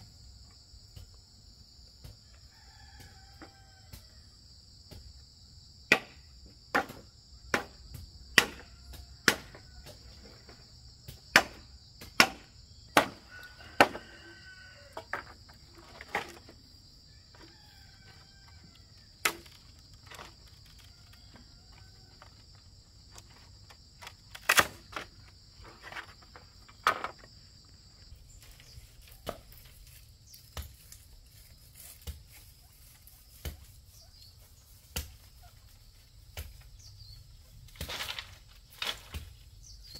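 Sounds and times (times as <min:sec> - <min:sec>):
high insect drone: 0:00.0 - 0:39.9
blade chopping bamboo: 0:05.9 - 0:08.6, 0:09.2 - 0:09.6, 0:11.1 - 0:13.2, 0:19.2 - 0:20.2.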